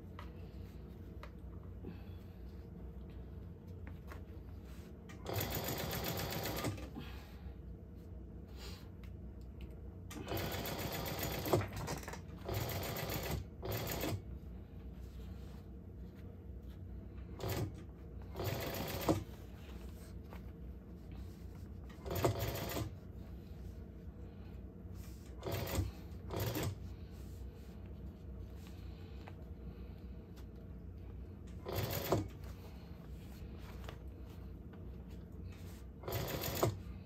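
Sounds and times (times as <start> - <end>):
steady low hum: 0.0 - 37.0
sewing machine stitching: 5.1 - 6.9, 10.1 - 14.2, 17.4 - 19.3, 21.9 - 22.9, 25.3 - 26.8, 31.6 - 32.4, 36.0 - 36.8.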